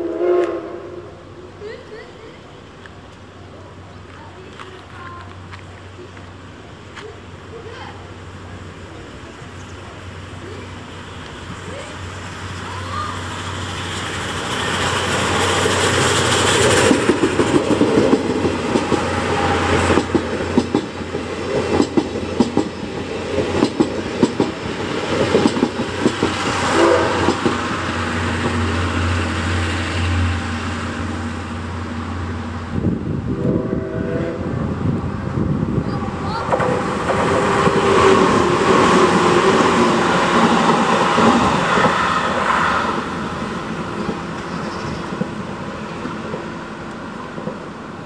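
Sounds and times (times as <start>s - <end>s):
steam locomotive passing: 0.0s - 48.0s
train wheels clattering over rail joints: 13.6s - 29.6s, 36.3s - 48.0s.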